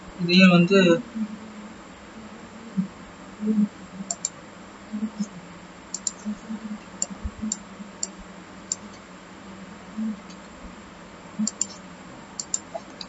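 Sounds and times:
mouse buttons clicking: 12.4s - 13.0s.

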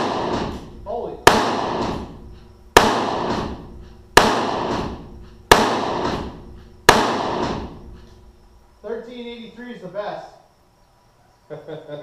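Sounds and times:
revolver gunshots echoing: 0.0s - 8.0s.

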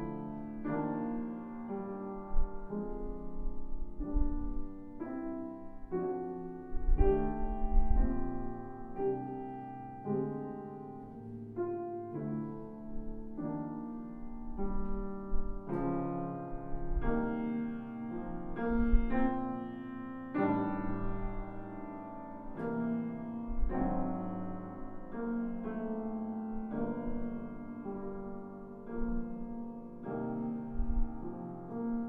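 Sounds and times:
piano chords ringing: 0.0s - 32.0s.

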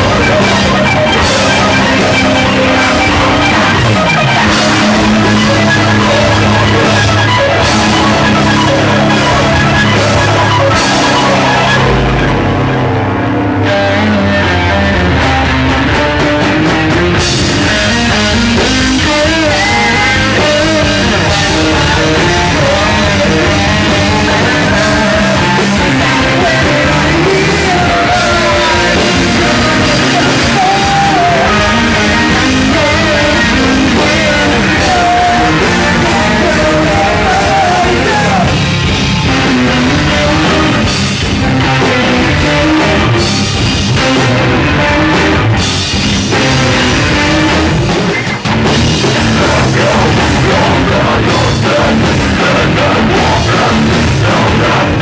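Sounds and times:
synthesizer: 0.0s - 16.0s
distorted electric guitars: 0.0s - 55.0s
drum kit: 0.0s - 55.0s.

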